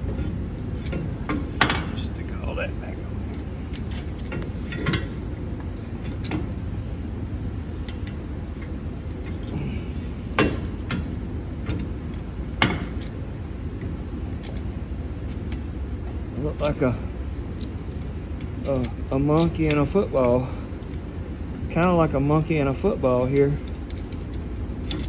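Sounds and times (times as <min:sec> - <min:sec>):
steady low hum: 0:00.0 - 0:25.0
metal parts clinking and knocking: 0:23.4 - 0:25.0.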